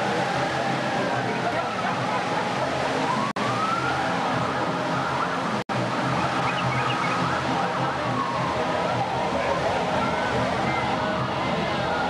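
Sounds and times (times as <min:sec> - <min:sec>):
waterfall rushing: 0:00.0 - 0:12.0
siren wailing: 0:03.0 - 0:05.4, 0:06.1 - 0:12.0.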